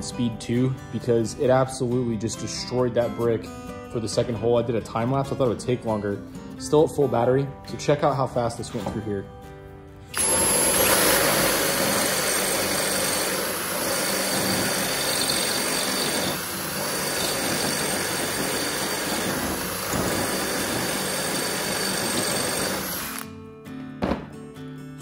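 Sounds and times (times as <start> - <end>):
drill grinding through brick: 10.1 - 23.3.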